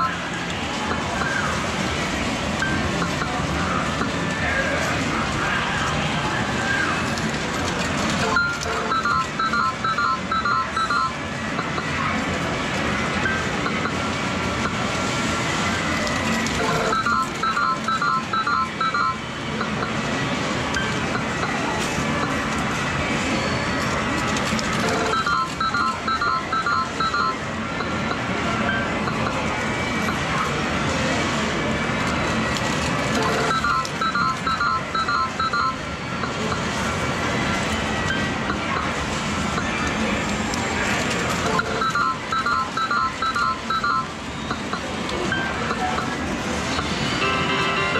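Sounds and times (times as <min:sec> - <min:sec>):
arcade machines din: 0:00.0 - 0:47.9
video poker machine beep tones: 0:08.2 - 0:11.8, 0:16.6 - 0:20.0, 0:24.8 - 0:29.5, 0:33.2 - 0:36.8, 0:41.4 - 0:46.2
short electronic beeps: 0:41.6 - 0:46.1.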